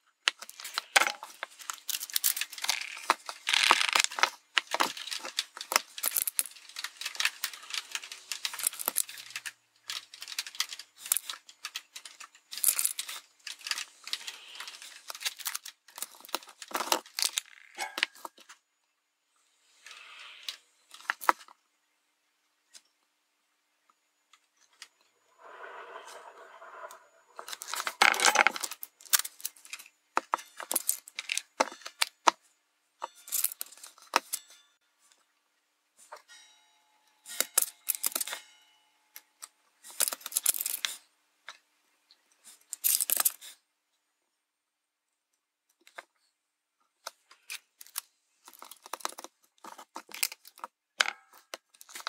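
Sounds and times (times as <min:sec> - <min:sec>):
hands handling circuit board: 0:00.2 - 0:18.6, 0:47.0 - 0:52.0.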